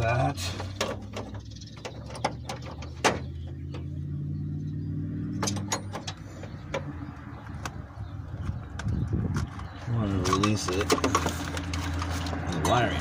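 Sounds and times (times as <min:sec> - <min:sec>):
low engine hum: 0:00.0 - 0:13.0.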